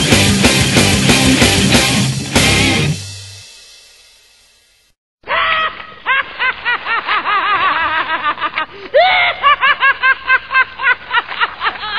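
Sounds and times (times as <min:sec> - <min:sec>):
high-pitched cartoon laugh: 0:05.3 - 0:11.9.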